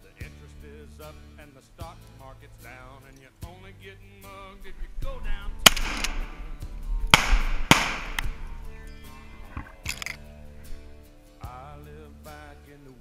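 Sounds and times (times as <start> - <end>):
country music: 0.0 - 13.0
shotgun blasts with echo: 5.3 - 8.7.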